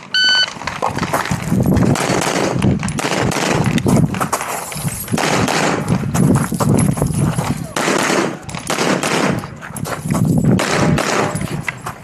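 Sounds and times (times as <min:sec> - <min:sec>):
pistol shots in rapid succession: 0:01.8 - 0:03.8, 0:05.1 - 0:06.0, 0:07.6 - 0:09.6, 0:10.5 - 0:11.6.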